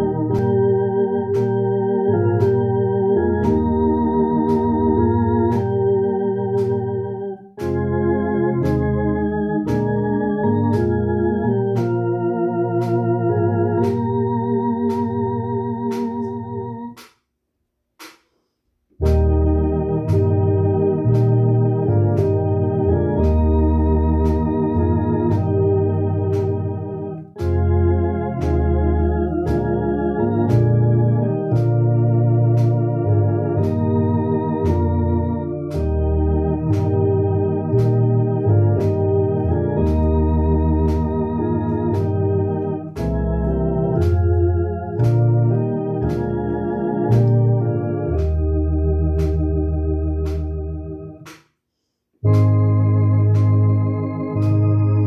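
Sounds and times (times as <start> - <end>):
electronic organ playing a hymn: 0.0 - 17.0, 19.0 - 51.3, 52.2 - 55.0.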